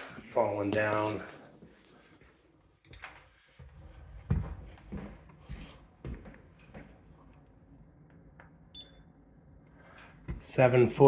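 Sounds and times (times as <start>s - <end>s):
footsteps on bare floor: 0.0s - 7.3s.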